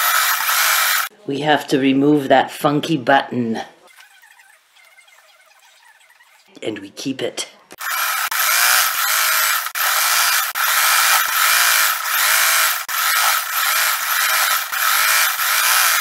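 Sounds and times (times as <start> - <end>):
sewing machine stitching: 7.8 - 16.0.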